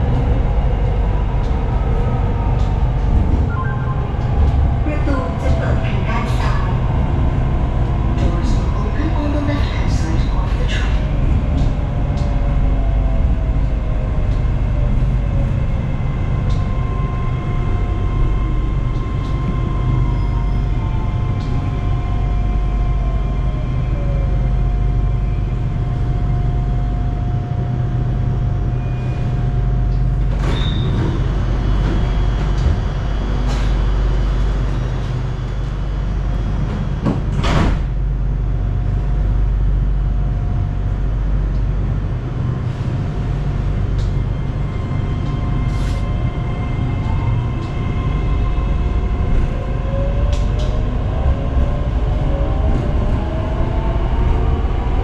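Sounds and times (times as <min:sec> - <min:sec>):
train rumble and hum: 0:00.0 - 0:55.0.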